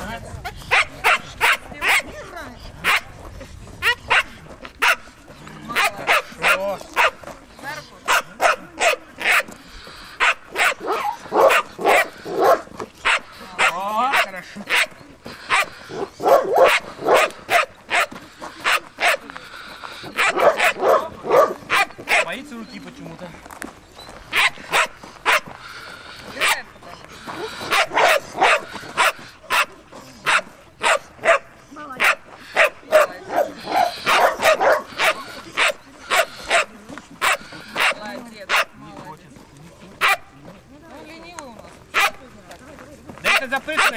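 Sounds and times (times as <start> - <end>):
dog barking: 0.7 - 2.1, 2.8 - 3.1, 3.8 - 5.1, 5.8 - 7.2, 8.1 - 9.5, 10.2 - 14.9, 15.5 - 19.2, 20.2 - 22.3, 24.3 - 25.5, 27.7 - 38.7, 40.0 - 40.2, 42.0 - 42.2.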